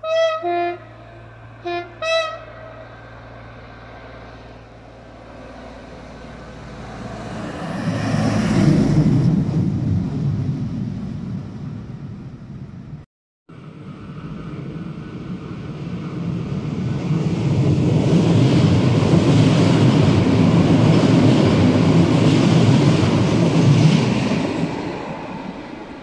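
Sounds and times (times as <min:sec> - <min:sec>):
train horn blasts: 0:00.0 - 0:02.8
train rumbling past: 0:00.0 - 0:26.0.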